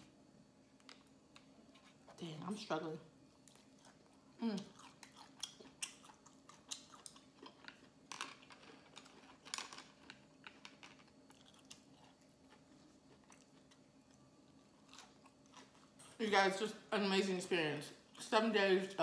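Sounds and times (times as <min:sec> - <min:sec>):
chewing with wet mouth clicks: 0:03.4 - 0:07.9, 0:08.6 - 0:16.2.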